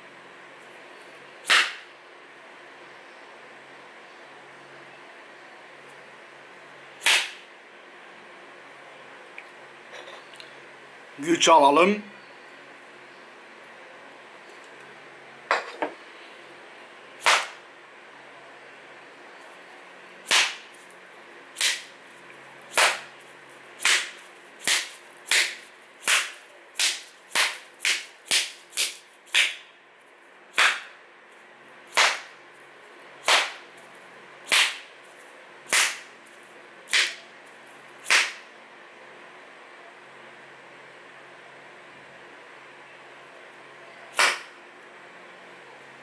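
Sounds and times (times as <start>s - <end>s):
sharp hand slaps: 1.5s - 1.8s, 7.0s - 7.4s, 17.2s - 17.6s, 20.3s - 20.7s, 21.6s - 21.9s, 22.7s - 23.1s, 23.8s - 29.6s, 30.6s - 30.9s, 31.9s - 32.3s, 33.2s - 33.6s, 34.5s - 34.8s, 35.7s - 36.0s, 36.9s - 37.2s, 38.1s - 38.4s, 44.2s - 44.5s.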